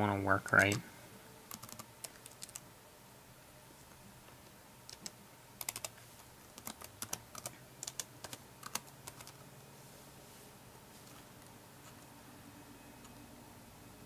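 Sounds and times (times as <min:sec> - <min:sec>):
laptop keyboard typing: 0:01.5 - 0:02.6, 0:04.9 - 0:06.0, 0:06.6 - 0:09.4.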